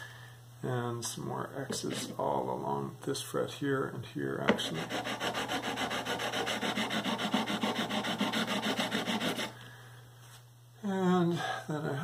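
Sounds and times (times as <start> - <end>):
sandpaper rubbing over metal frets: 4.6 - 9.5.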